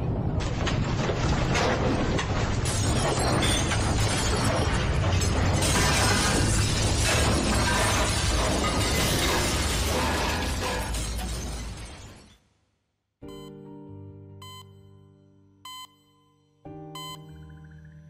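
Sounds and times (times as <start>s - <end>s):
dense crashing noise: 0.0s - 12.2s
background music: 13.2s - 18.0s.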